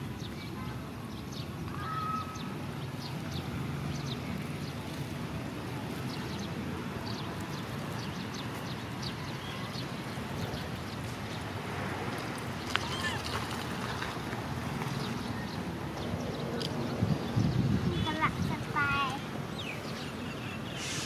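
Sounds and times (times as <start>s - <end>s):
small birds chirping: 14.9s - 21.0s.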